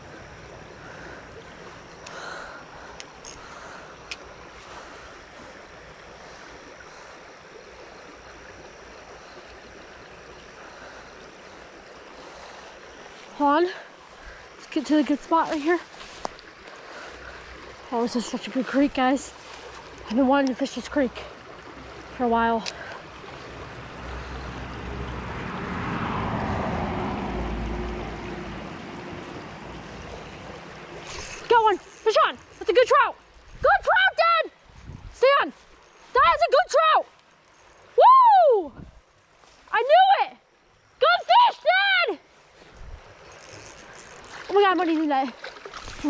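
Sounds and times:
creek water flowing: 0.0 - 46.0
wind buffeting microphone: 34.6 - 35.6, 42.7 - 43.8.

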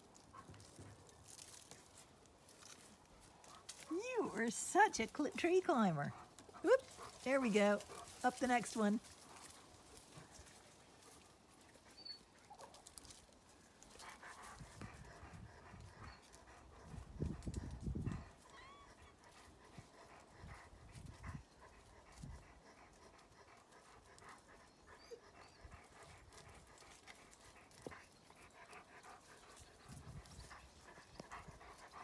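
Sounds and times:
dog panting: 2.6 - 32.0.

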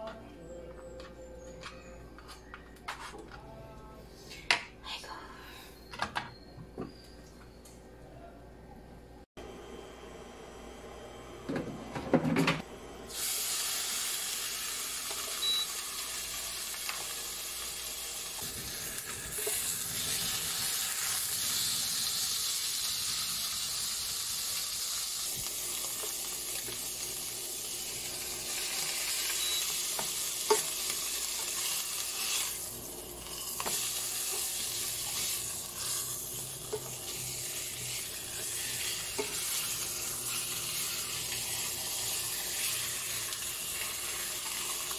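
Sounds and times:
pork sizzling in oil: 13.1 - 44.9.

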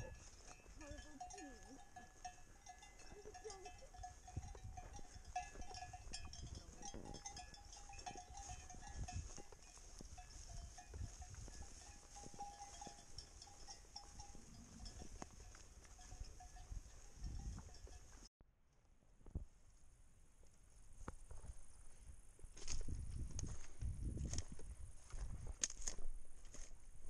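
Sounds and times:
sheep bells ringing: 0.0 - 18.3.

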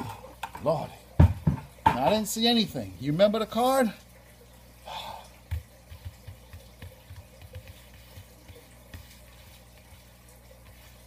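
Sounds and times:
playing cards tapping and clicking: 5.5 - 9.8.

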